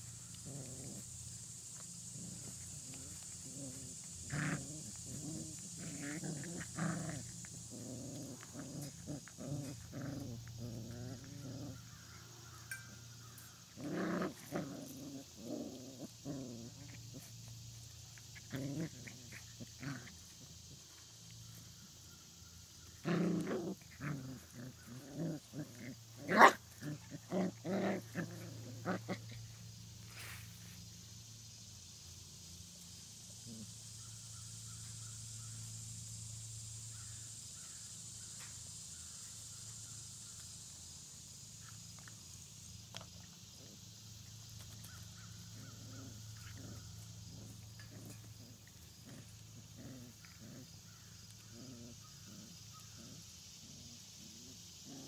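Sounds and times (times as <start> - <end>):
puppies growling: 0.0 - 22.0, 22.8 - 30.3, 42.9 - 55.0.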